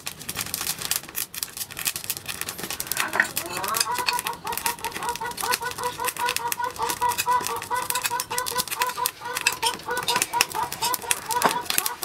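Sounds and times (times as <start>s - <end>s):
person eating soup: 2.4s - 12.0s
rapid chirping call: 3.0s - 12.0s.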